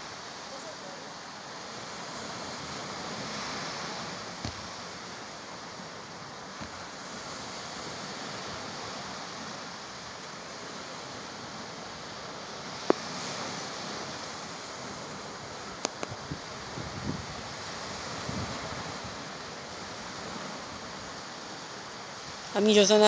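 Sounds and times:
distant sea surf: 0.0s - 23.0s
faint ticks: 15.8s - 16.2s.

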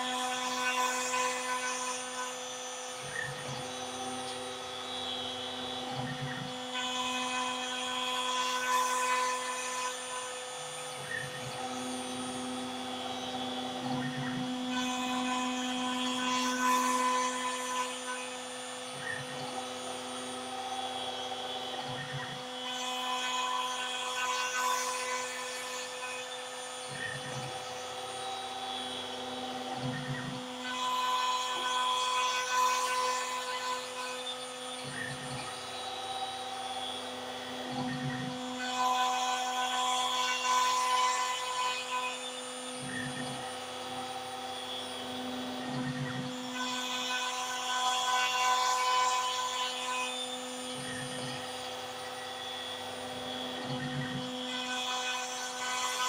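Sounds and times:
router bit cutting wood: 0.0s - 56.0s.

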